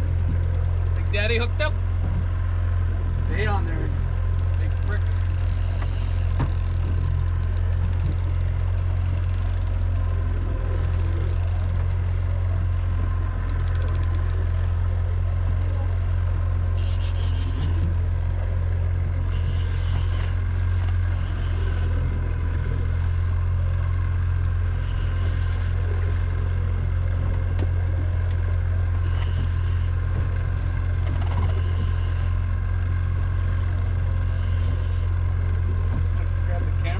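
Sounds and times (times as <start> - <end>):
boat engine droning: 0.0 - 36.9
fishing reel drag buzzing: 4.4 - 10.0, 10.7 - 12.0, 16.7 - 18.0, 19.2 - 22.4, 24.6 - 26.0, 29.0 - 30.1, 31.3 - 32.6, 34.1 - 35.3.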